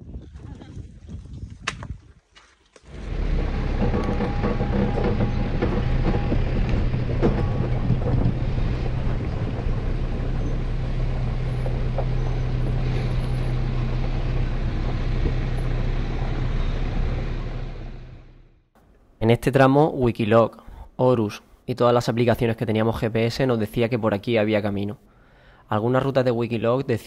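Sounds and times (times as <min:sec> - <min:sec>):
knocks and rattles: 0:02.9 - 0:17.7
engine drone: 0:02.9 - 0:18.6.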